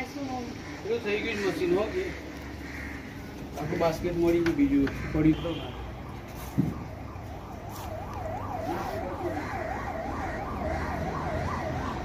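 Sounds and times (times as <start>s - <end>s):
siren yelping: 5.9s - 12.0s.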